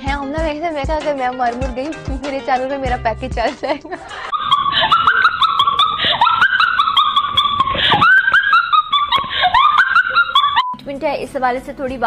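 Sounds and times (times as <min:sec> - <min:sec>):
high-pitched whining cries: 0:04.3 - 0:10.8.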